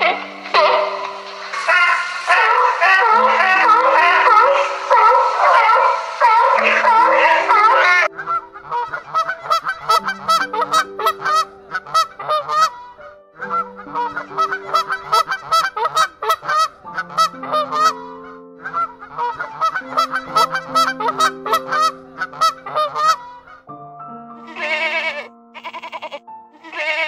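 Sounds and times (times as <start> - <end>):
waterfowl honking: 0.0 - 23.6, 24.5 - 27.0
soft background music: 0.0 - 27.0.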